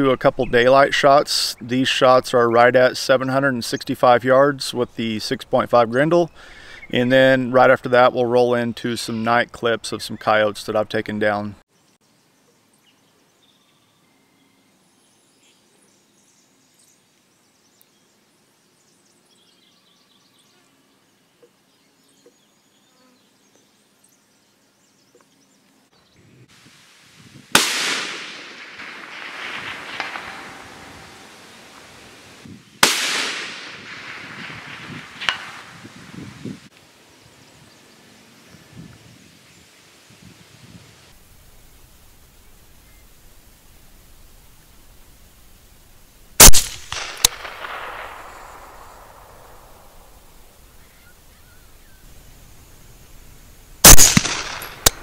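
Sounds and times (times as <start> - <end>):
faint birdsong: 5.4 - 7.4, 8.3 - 26.5, 37.1 - 46.2, 47.5 - 54.0
rifle shots with rolling echo: 27.5 - 35.9, 46.4 - 50.7, 53.8 - 55.0.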